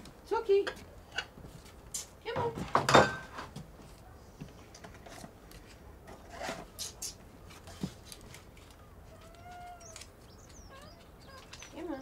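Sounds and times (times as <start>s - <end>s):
rustling and scraping at counter: 2.7s - 9.8s
cat meowing: 9.1s - 11.6s.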